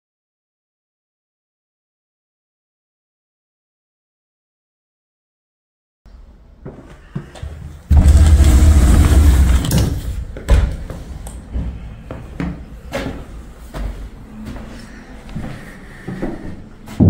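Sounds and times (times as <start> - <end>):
door scraping open: 7.9 - 10.4.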